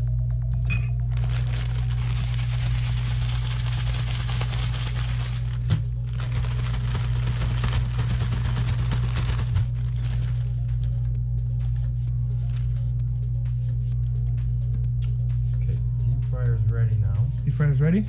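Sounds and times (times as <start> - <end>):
steady low hum: 0.0 - 18.0
plastic bag rustling: 1.0 - 11.0.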